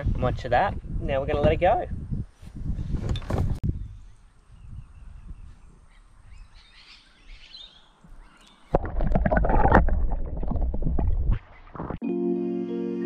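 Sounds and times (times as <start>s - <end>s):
faint birdsong: 3.6s - 8.8s
underwater rumbling and splashing: 8.7s - 12.0s
music: 12.0s - 13.0s.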